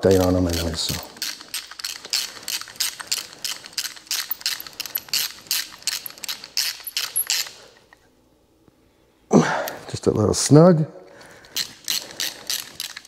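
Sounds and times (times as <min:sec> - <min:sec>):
hand ratchet clicking: 0:00.0 - 0:07.6, 0:11.2 - 0:13.0.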